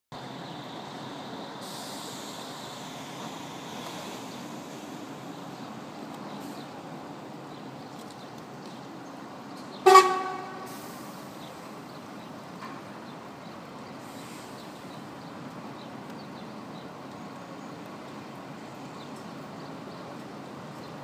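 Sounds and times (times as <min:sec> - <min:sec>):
low rumble of engines: 0:00.1 - 0:21.0
coach horn honk: 0:09.8 - 0:10.8.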